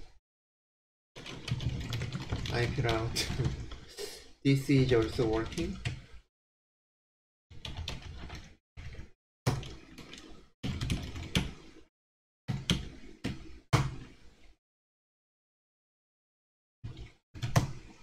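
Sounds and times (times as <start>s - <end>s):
keyboard typing: 1.2s - 3.8s.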